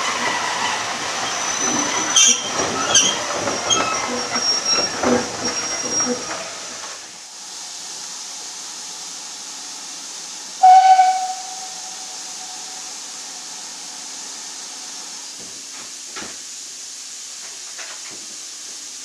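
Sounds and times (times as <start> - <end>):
steam hissing: 0.0 - 19.0
steam locomotive whistle blast: 10.6 - 12.9.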